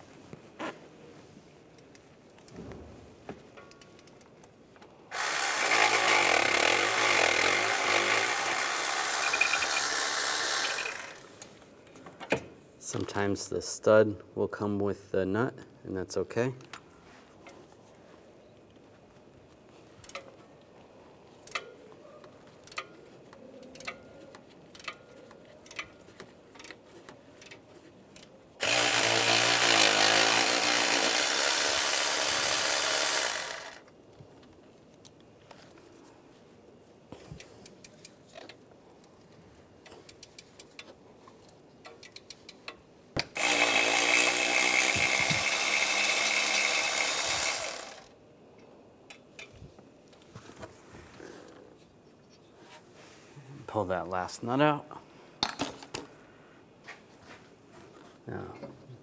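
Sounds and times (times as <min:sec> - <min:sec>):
power tool spinning nuts: 0:05.1 - 0:11.4, 0:28.6 - 0:33.9, 0:43.3 - 0:48.1.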